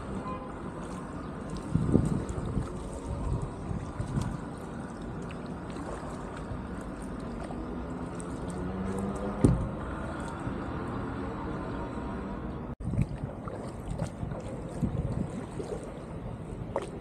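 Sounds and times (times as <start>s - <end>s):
paddle dipping through water: 0.0s - 11.2s, 12.8s - 17.0s
water lapping along hull: 0.0s - 17.0s
wind on microphone: 1.2s - 7.2s, 12.8s - 17.0s.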